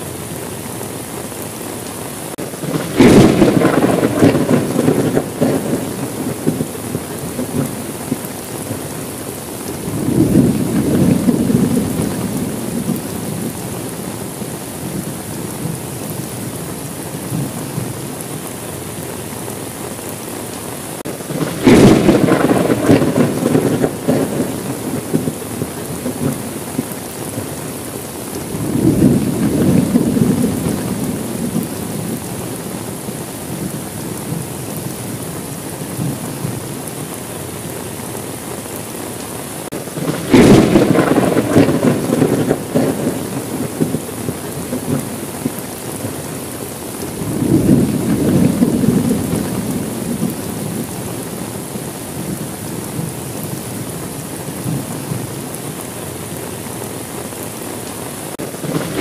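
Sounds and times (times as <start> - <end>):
steady rain: 0.0 - 59.0
close thunder crack: 2.4 - 8.8, 9.8 - 13.8, 21.0 - 27.5, 28.4 - 32.8, 39.7 - 46.2, 47.2 - 51.1, 58.3 - 59.0
thunder rumbling: 2.4 - 38.8, 39.6 - 57.4, 58.0 - 59.0.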